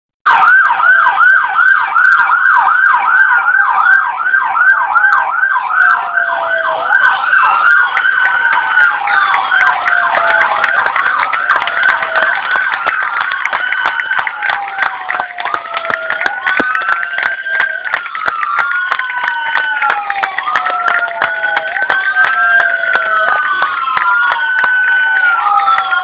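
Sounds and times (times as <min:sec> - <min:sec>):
emergency siren yelping: 0:00.3 - 0:26.0
overlapping siren tones: 0:00.3 - 0:26.0.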